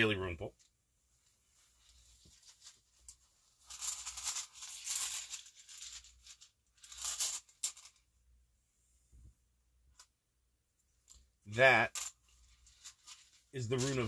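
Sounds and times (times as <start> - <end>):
runes rattling: 1.8 - 8.1, 11.0 - 14.0.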